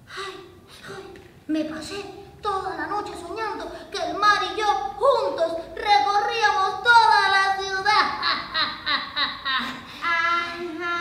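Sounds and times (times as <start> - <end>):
high child-like voice singing: 10.0 - 11.0.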